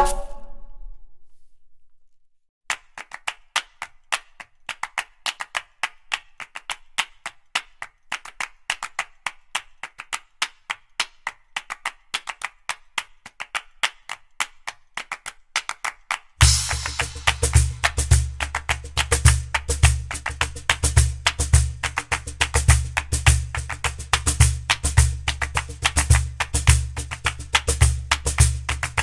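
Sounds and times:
background music: 16.4 - 29.0
sharp percussive taps: 16.4 - 29.0.

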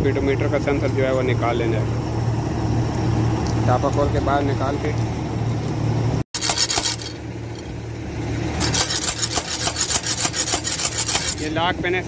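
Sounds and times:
metallic rasping of hand tool: 8.6 - 11.5.

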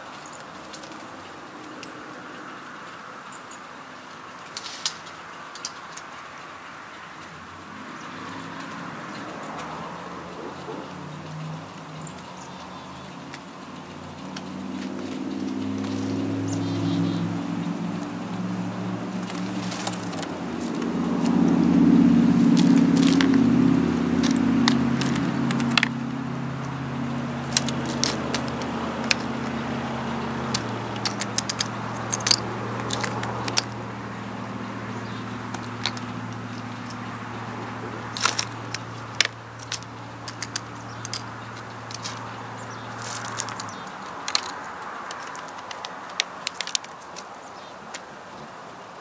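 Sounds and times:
low engine hum: 0.0 - 48.9
bird pecking on wooden feeder: 13.2 - 48.1.

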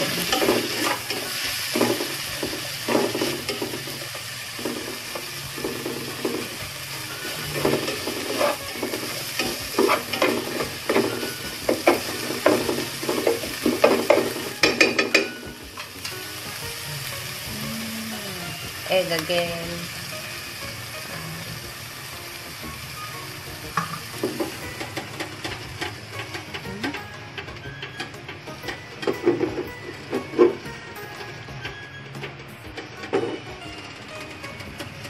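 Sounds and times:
utensil scraping a pan: 0.0 - 15.9
food sizzling in a pan: 0.0 - 35.0.

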